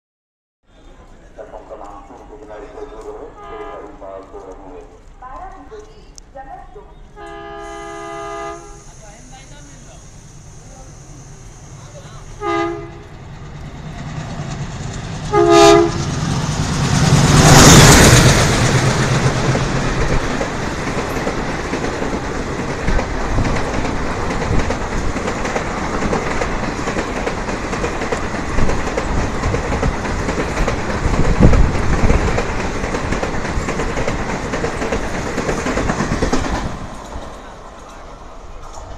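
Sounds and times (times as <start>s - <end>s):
diesel locomotive passing: 0.7s - 38.9s
train horn blasts: 3.4s - 4.0s, 7.2s - 9.0s, 12.4s - 13.2s, 15.3s - 16.1s
train coaches clattering over rails: 13.0s - 38.9s.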